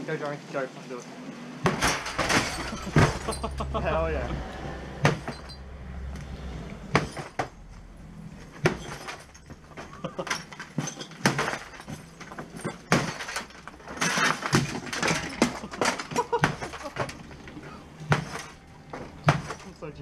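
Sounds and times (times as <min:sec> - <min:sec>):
glass smashing: 0:01.6 - 0:04.3, 0:05.0 - 0:05.7, 0:08.5 - 0:17.4, 0:18.0 - 0:20.0.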